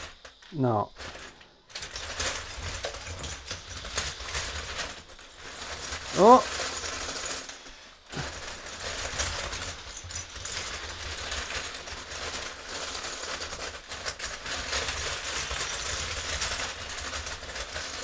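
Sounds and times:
plastic bricks clattering: 0.0s - 18.0s
toy car motor: 0.0s - 18.0s.

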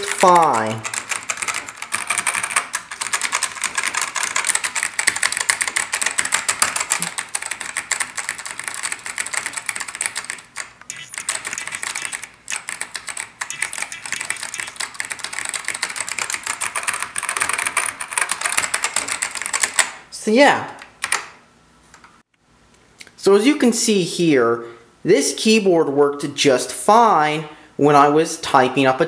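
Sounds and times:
fast typing on mechanical keyboard: 0.0s - 20.0s.

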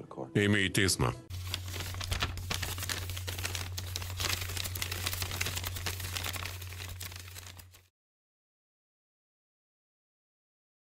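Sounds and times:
irregular crackling static: 1.3s - 7.9s.

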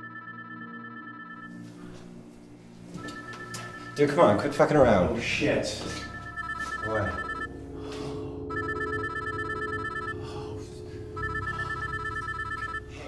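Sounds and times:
phone ringing electronic trill: 0.0s - 1.5s, 6.0s - 7.6s, 8.5s - 10.2s, 11.1s - 13.0s
low music drone: 0.0s - 13.0s.

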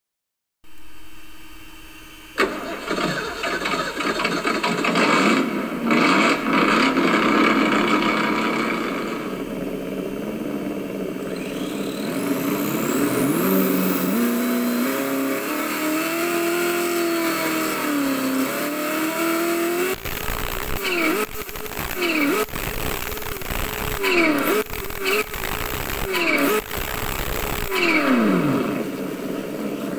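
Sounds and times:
simulated car engine revving: 2.4s - 29.9s
high whine sweeping upward: 8.0s - 29.9s.

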